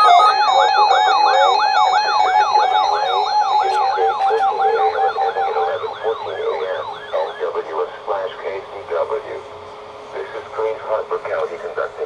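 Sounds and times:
steady pulsing beep: 0.0s - 8.0s
warbling alert siren: 0.0s - 9.4s.

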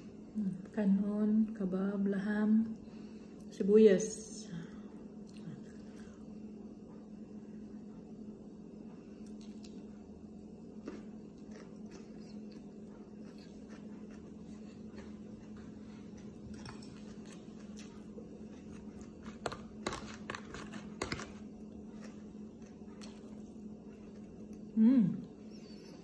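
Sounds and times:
steady low hum: 0.0s - 26.0s
chewing and mouth sounds: 5.2s - 6.4s, 9.2s - 24.8s.

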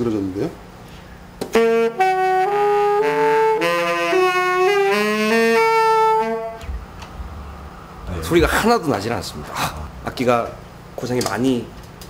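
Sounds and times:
saxophone held notes: 1.5s - 7.4s.

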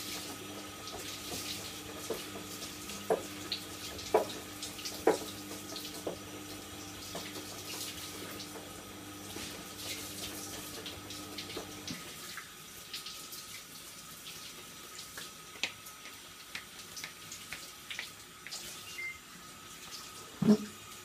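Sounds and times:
tap water running into sink: 0.0s - 21.0s.

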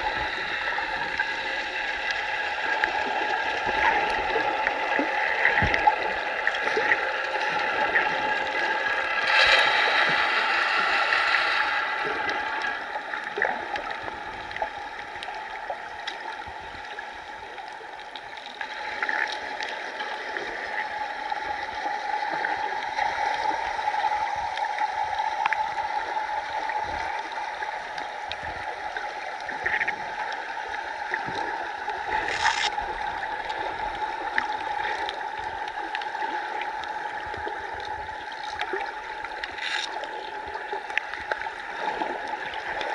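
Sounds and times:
constant hum: 0.0s - 42.9s
underwater water noise: 0.0s - 42.9s
faint clicks: 38.3s - 40.1s.

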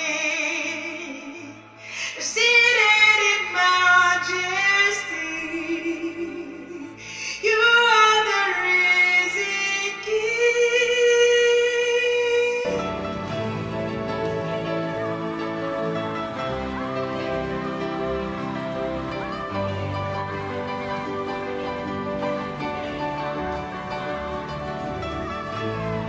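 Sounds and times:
woman singing worship song: 0.0s - 12.8s
soft musical accompaniment: 0.0s - 26.0s.

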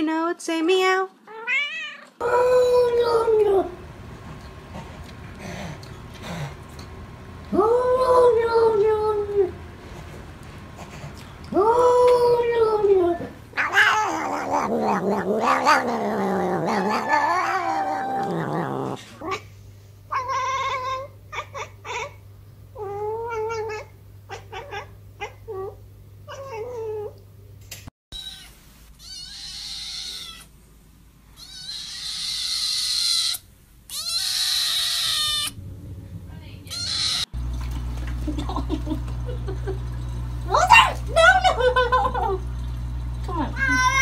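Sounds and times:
cat meowing: 1.3s - 2.2s, 13.6s - 19.4s, 28.2s - 30.5s, 31.4s - 35.6s, 36.7s - 37.3s
cat yowling: 13.5s - 19.4s, 28.2s - 30.5s, 31.4s - 35.6s, 36.7s - 37.3s, 43.6s - 44.0s
kitten meowing: 28.2s - 30.5s, 31.4s - 35.6s, 36.7s - 37.2s.

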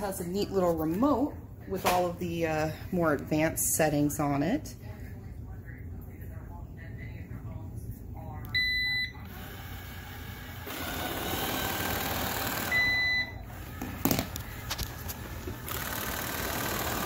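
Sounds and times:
robot vacuum beep: 8.6s - 9.2s, 12.6s - 13.5s
robot vacuum whirring: 9.3s - 12.9s.

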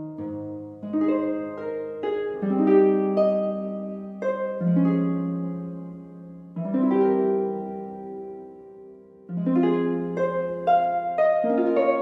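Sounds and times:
plucked harp-like melody: 0.0s - 12.0s.

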